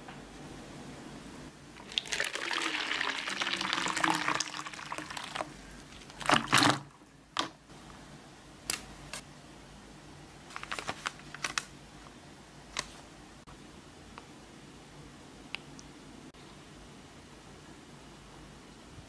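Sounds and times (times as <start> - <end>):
water pouring into plastic bowl: 1.8 - 7.0.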